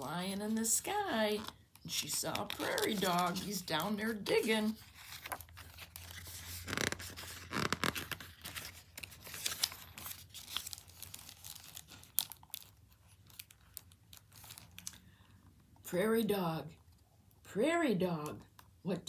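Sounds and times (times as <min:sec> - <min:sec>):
paper pages rustling: 0:00.6 - 0:14.9.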